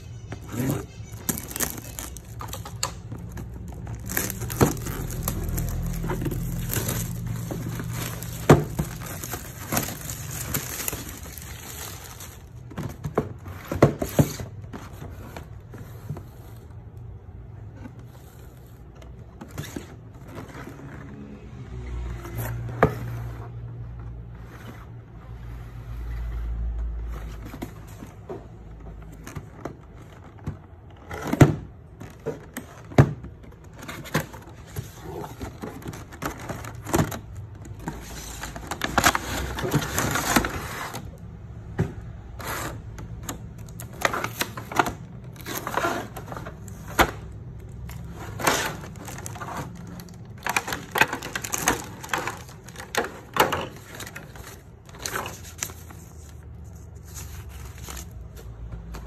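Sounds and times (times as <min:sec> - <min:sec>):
plastic packaging crinkling: 0:00.0 - 0:13.1, 0:43.2 - 0:59.0.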